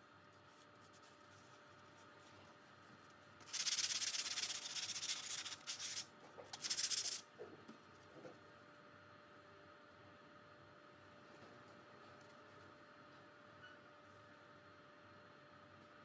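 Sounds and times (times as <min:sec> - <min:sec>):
sandpaper rubbing on board: 0:03.4 - 0:07.2.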